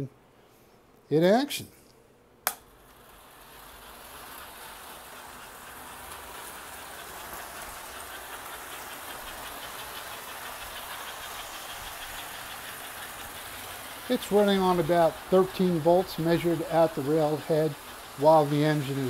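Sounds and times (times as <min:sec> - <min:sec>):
sharp click: 0:02.4 - 0:02.6
toy train motor humming and rattling: 0:02.7 - 0:19.0
fast rhythmic ticking: 0:03.8 - 0:19.0.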